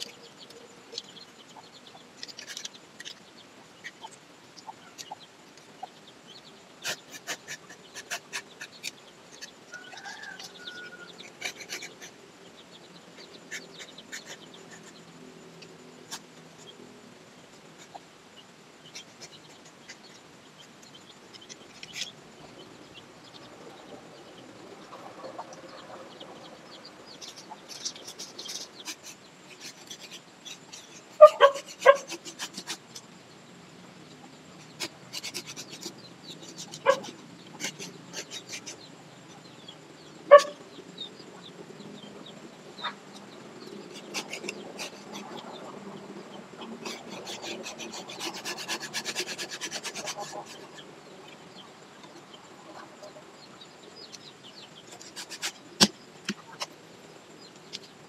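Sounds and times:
hand saw rasping on branch: 6.8s - 12.1s, 27.3s - 33.0s, 34.7s - 38.8s, 43.9s - 45.3s, 46.7s - 50.8s, 54.9s - 56.7s.

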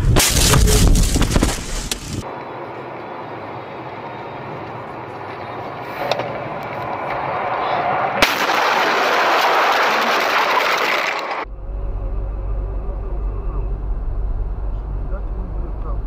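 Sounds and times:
loud rushing scraping noise: 0.0s - 2.2s
sharp crash bang: 0.0s - 2.2s
car road noise: 0.0s - 16.0s.

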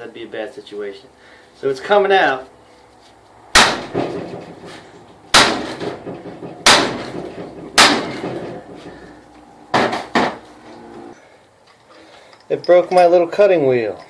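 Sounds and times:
sledgehammer striking steel: 3.5s - 8.8s.

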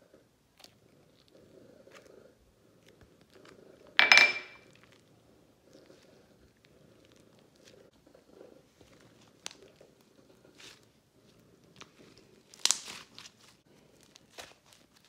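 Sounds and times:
slime crackling and popping: 9.1s - 9.7s, 11.8s - 15.0s.

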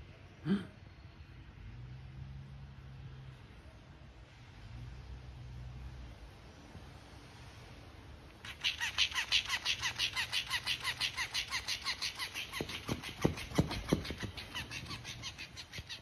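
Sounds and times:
toy motor flapping rhythmically: 8.5s - 16.0s
toy slapping hard surface: 8.5s - 16.0s.

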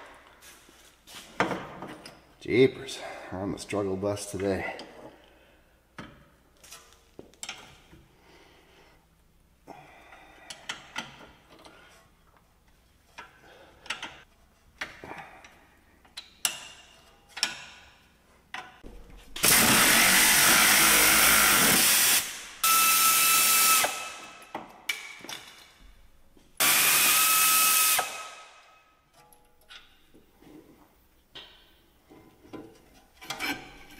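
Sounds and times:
pneumatic air ratchet running: 19.4s - 24.2s, 26.6s - 28.4s.

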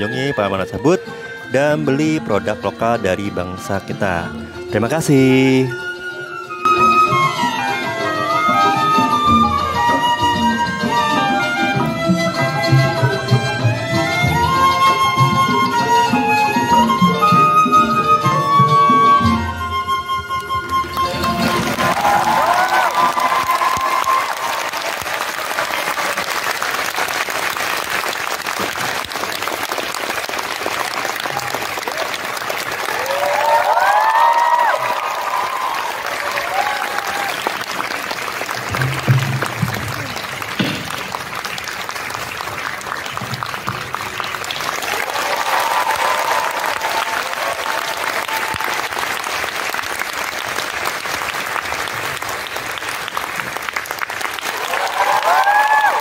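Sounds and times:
background music: 0.0s - 24.7s
dense patter of claps: 20.4s - 56.0s
audience applause: 20.6s - 56.0s.

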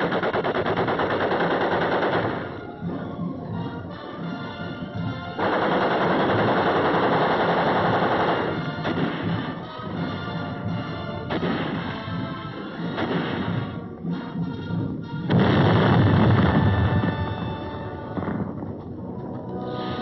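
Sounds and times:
machine-gun and rifle fire: 0.0s - 2.7s, 5.3s - 10.0s, 11.2s - 13.8s, 15.3s - 17.2s
film score music: 0.0s - 20.0s.

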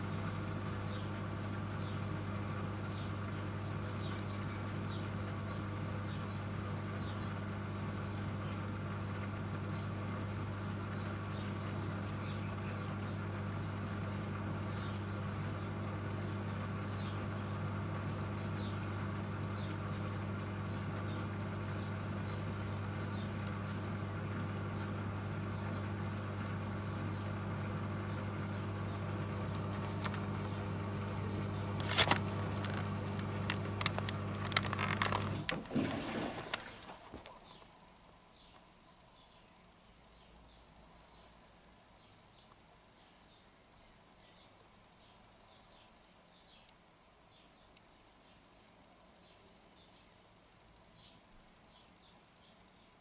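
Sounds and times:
washing machine drain pump humming: 0.0s - 37.3s
pump gurgling with clicks: 31.8s - 37.4s.

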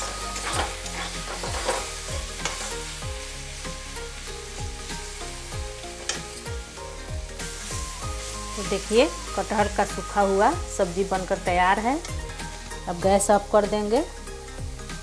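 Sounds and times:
metal spatula scraping a pan: 0.0s - 3.1s
background music with beat: 0.0s - 15.0s
food sizzling: 0.0s - 15.0s.

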